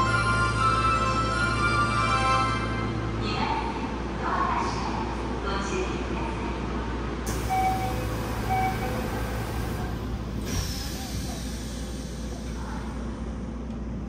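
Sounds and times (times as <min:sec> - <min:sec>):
door chime beeps: 0:07.5 - 0:09.1.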